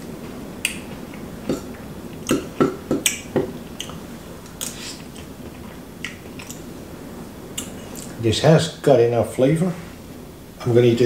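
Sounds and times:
wet mouth smacks and clicks: 0:03.8 - 0:05.3.

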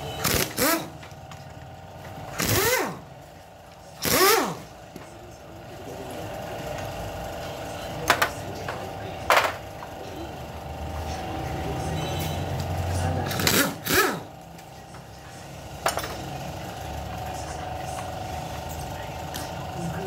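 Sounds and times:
power tool whining: 0:00.0 - 0:03.1, 0:04.0 - 0:04.6, 0:12.2 - 0:14.4.

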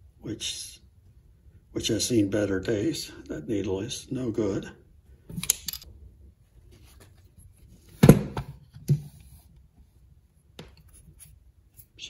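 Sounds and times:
metal parts knocking and clicking: 0:05.4 - 0:05.8
thud on workbench: 0:08.0 - 0:08.6.

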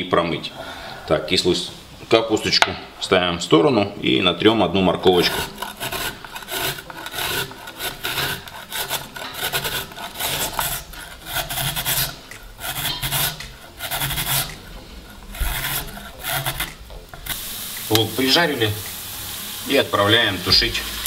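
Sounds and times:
carrot scraping on metal grater: 0:04.9 - 0:17.4.

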